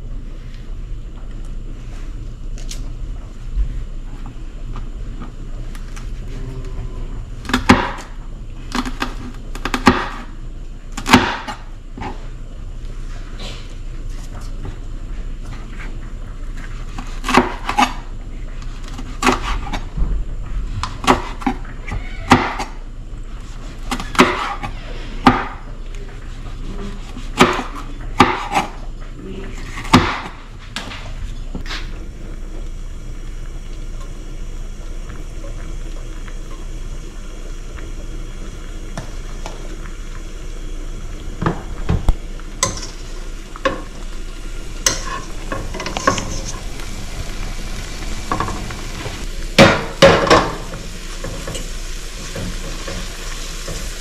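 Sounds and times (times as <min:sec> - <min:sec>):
low background hum: 0:00.0 - 0:54.0
knife chopping on plastic board: 0:27.4 - 0:28.7, 0:29.8 - 0:30.3.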